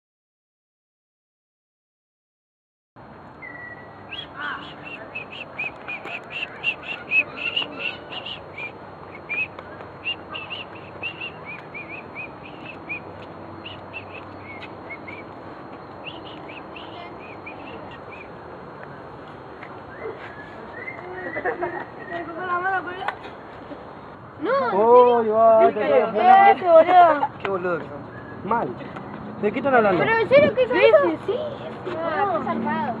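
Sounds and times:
steady background noise: 3.0s - 33.0s
birds chirping: 3.3s - 24.2s, 27.6s - 32.6s.

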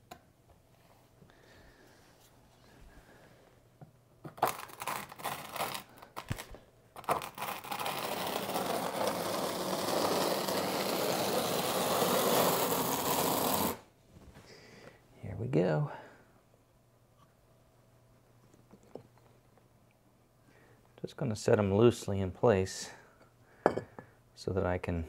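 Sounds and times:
trowel scraping mortar: 7.0s - 13.8s.

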